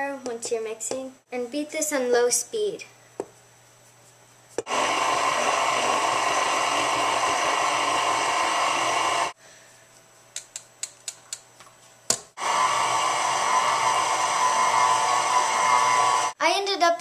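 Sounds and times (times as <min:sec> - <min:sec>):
electric mixer running: 0:04.7 - 0:09.4, 0:12.4 - 0:16.4.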